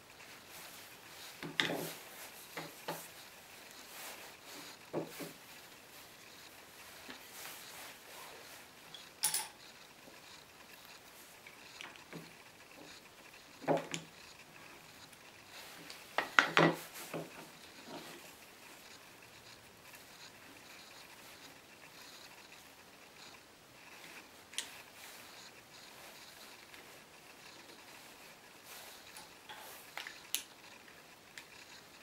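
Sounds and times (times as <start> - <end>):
handling sounds of a wooden plane: 0.0 - 23.1.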